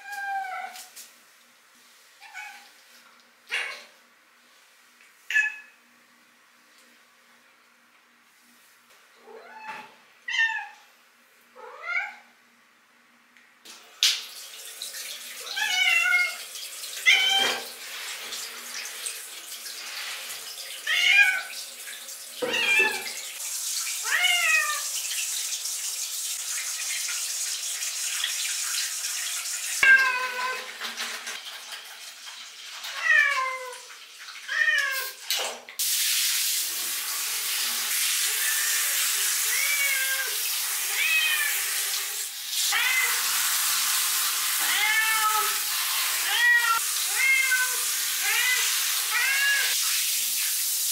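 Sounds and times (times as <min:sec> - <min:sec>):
shower head water hissing: 0:13.7 - 0:29.8, 0:35.8 - 0:50.9.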